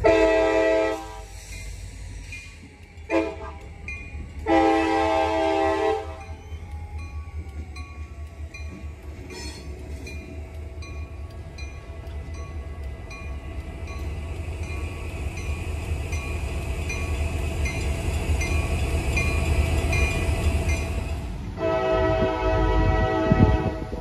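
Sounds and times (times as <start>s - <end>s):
locomotive air horn chord: 0.0s - 1.3s, 3.1s - 3.7s, 4.4s - 6.2s, 21.6s - 24.0s
diesel locomotives rumbling: 0.0s - 24.0s
crossing bell ringing: 5.9s - 21.1s.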